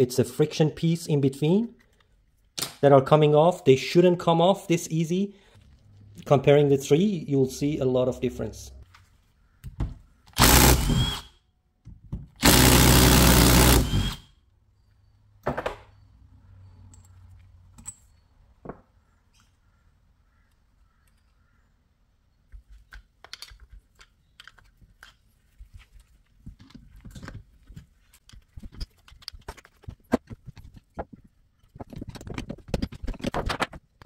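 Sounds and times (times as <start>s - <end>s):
power driver running: 10.4s - 11.3s, 12.4s - 14.3s.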